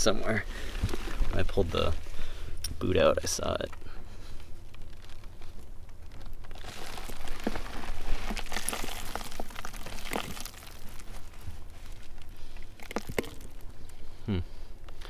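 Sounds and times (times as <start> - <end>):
soil scraped by hand: 6.5 - 13.7.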